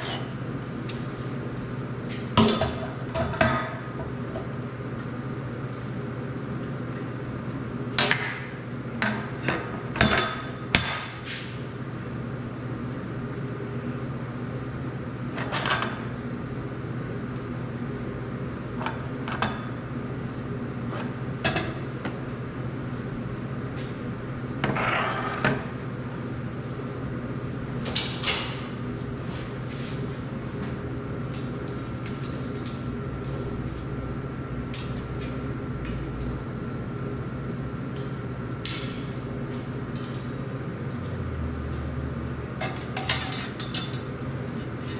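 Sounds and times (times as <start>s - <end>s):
steady low hum: 0.0s - 44.9s.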